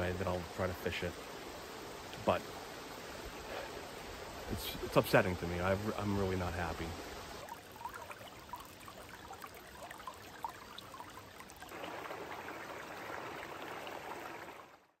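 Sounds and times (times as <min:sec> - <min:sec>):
brook running over rocks: 0:00.0 - 0:15.0
water plinks: 0:04.4 - 0:14.8.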